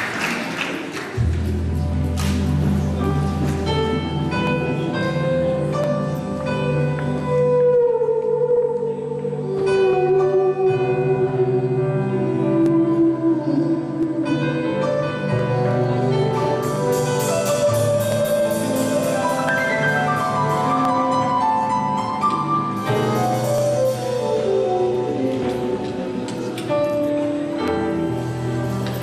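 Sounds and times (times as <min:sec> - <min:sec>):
piano chords: 0:01.1 - 0:29.0
gliding lead melody: 0:01.2 - 0:29.0
hand drum and cymbal beat: 0:16.2 - 0:21.6, 0:22.7 - 0:25.8.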